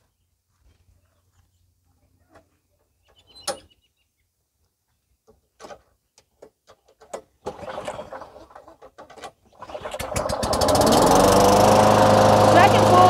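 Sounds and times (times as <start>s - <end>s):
mower engine starting and running: 7.4s - 13.0s.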